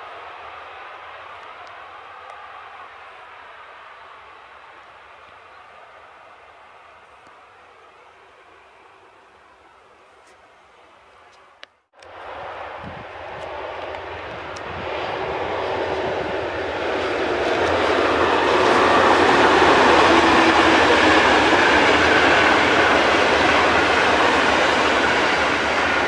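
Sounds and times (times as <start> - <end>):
train wheels rumbling on rails: 12.0 - 26.0.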